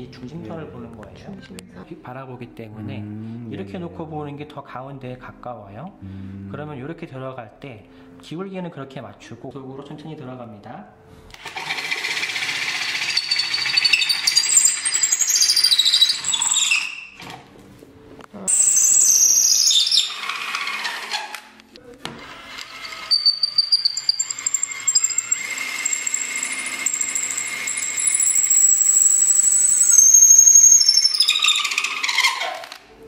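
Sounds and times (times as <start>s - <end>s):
cordless drill spinning: 11.4s - 17.0s, 22.2s - 32.8s
blade squealing on wood: 13.0s - 17.2s, 18.5s - 21.4s, 22.6s - 32.8s.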